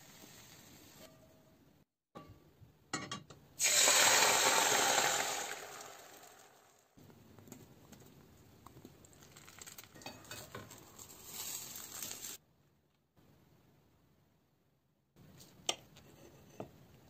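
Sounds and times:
omelet sizzling in pan: 0:00.0 - 0:01.2, 0:03.6 - 0:06.8, 0:09.2 - 0:12.4.

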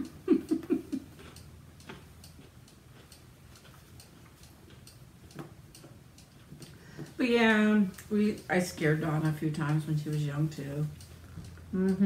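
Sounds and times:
cuckoo clock ticking: 0:04.8 - 0:12.0.

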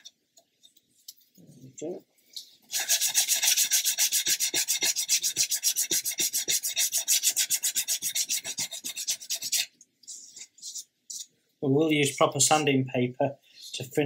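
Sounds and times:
nail file rasping on wood: 0:02.7 - 0:09.7.

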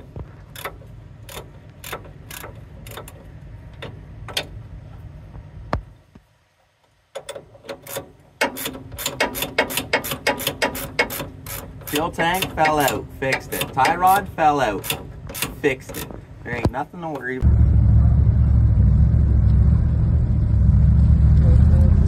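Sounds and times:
ratchet wrench clicking: 0:00.5 - 0:03.2, 0:07.2 - 0:16.2.

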